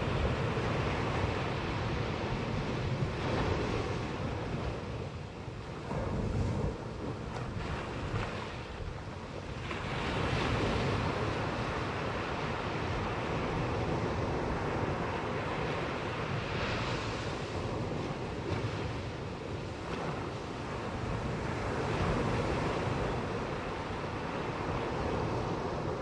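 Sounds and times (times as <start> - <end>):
ocean surf breaking on beach: 0.0 - 26.0.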